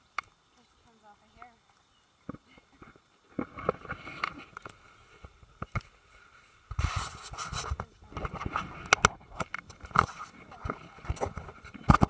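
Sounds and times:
rough rustle: 2.2 - 12.0
scratching on phone microphone: 6.7 - 12.0.

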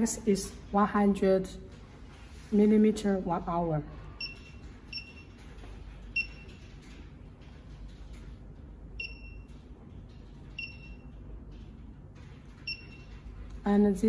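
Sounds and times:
electronic key-press beeps: 4.2 - 5.4, 6.1 - 6.6, 9.0 - 9.5, 10.5 - 11.1, 12.6 - 13.1.

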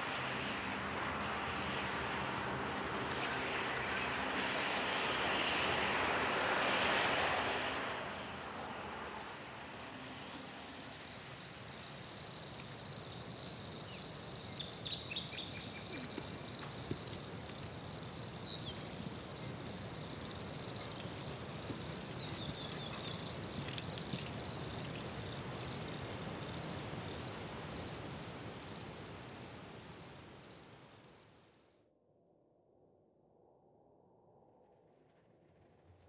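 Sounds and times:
high insect trill: 10.2 - 29.0.

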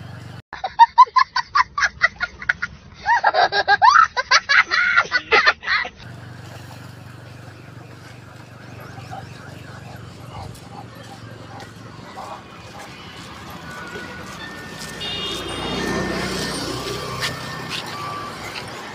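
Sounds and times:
steady low hum: 6.1 - 13.6.

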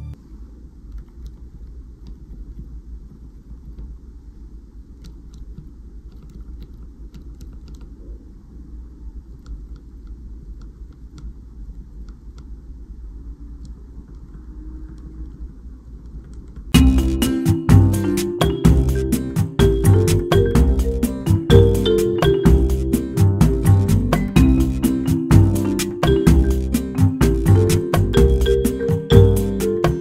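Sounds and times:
faint low rumble: 0.0 - 18.0.

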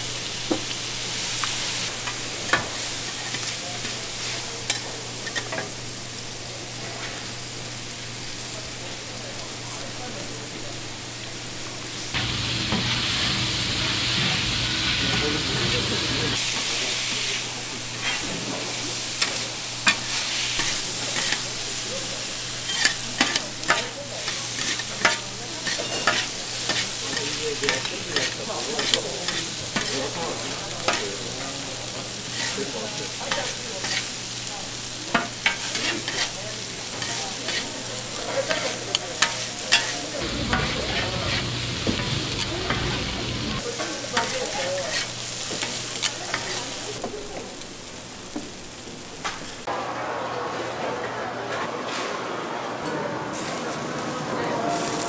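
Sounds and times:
noodles sizzling on a hot pan: 0.0 - 49.7, 53.4 - 55.0
utensils clacking and scraping metal: 17.9 - 21.6, 22.5 - 34.2, 35.1 - 47.0.

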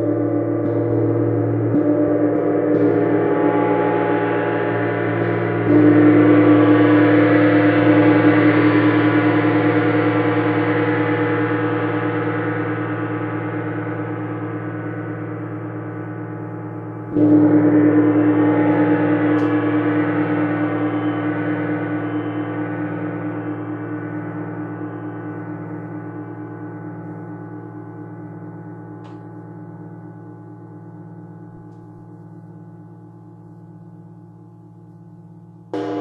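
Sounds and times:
gong ringing: 16.8 - 25.8, 35.8 - 36.0.

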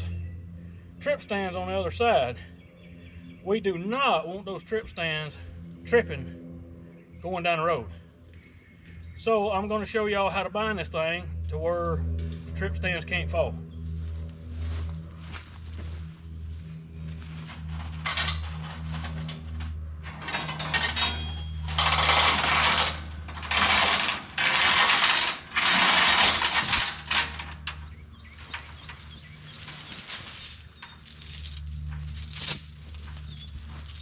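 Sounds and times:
low steady hum: 0.0 - 34.0
steel chain rattling and clanking: 17.5 - 34.0.

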